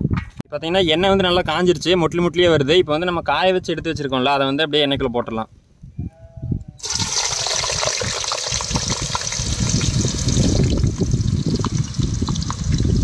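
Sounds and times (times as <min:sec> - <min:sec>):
potatoes sizzling in hot oil: 0:06.8 - 0:13.0.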